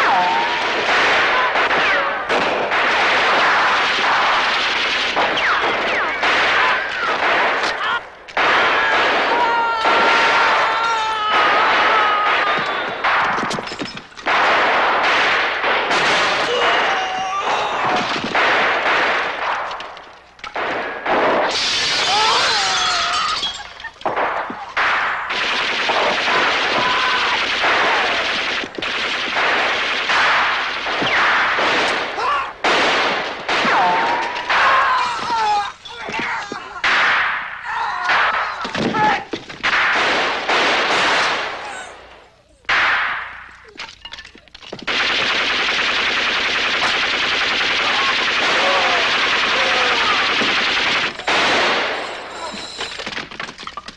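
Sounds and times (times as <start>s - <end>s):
rapid automatic gunfire: 0.0s - 10.7s, 11.3s - 16.9s, 17.8s - 19.9s, 24.0s - 34.7s, 39.6s - 41.6s, 44.8s - 53.5s
loud gunshot: 11.3s - 13.7s, 14.3s - 19.7s, 24.1s - 34.9s, 42.7s - 43.5s, 44.9s - 52.8s
glass shattering and crashing: 12.5s - 14.2s, 21.5s - 24.8s, 43.7s - 44.8s, 52.0s - 53.9s.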